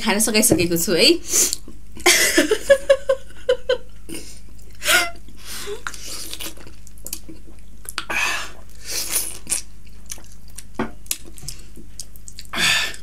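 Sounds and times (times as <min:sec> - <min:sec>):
wet chewing mouth sounds: 0:05.8 - 0:13.0.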